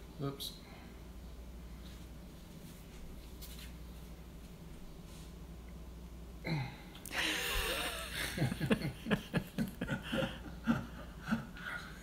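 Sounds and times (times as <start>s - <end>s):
person chuckling: 6.5s - 12.0s.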